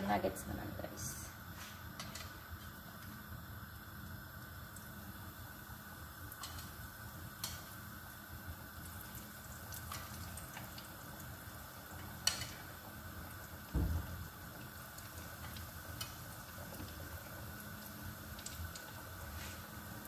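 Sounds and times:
food frying in oil: 0.0s - 20.0s.

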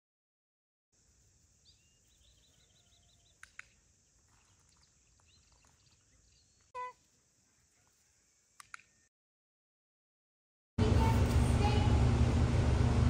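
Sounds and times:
faint songbird chirps: 1.2s - 9.1s
faint clicks: 3.3s - 3.8s, 8.6s - 9.0s.

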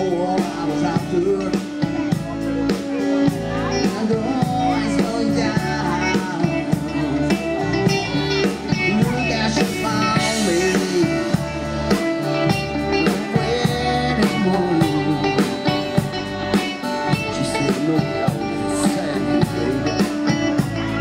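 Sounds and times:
drum kit beat: 0.0s - 21.0s
guitars: 0.0s - 21.0s
person singing: 0.0s - 21.0s.

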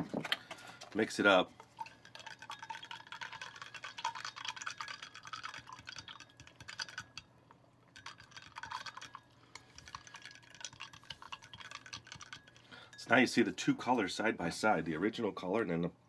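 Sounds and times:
spoon stirring in a glass: 1.6s - 7.3s, 7.9s - 13.5s.

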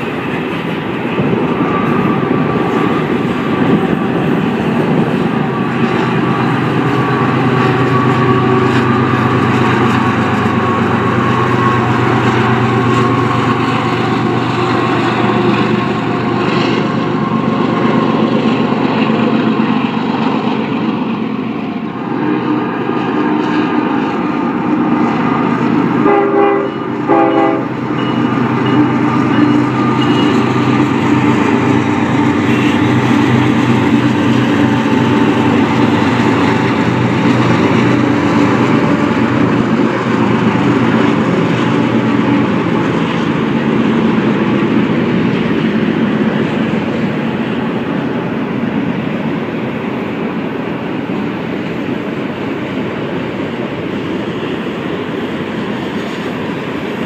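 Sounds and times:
diesel locomotive engine drone: 0.0s - 57.0s
train rolling on rails: 0.0s - 57.0s
locomotive horn blasts: 26.0s - 34.0s.

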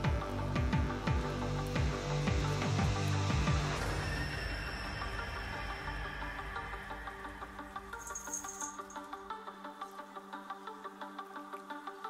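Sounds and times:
low music beat: 0.0s - 3.8s.

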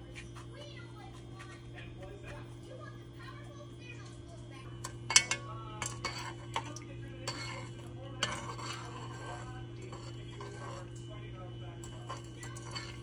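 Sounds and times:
metal spoon stirring liquid: 4.6s - 13.0s
spoon clinking against pot: 4.8s - 13.0s.

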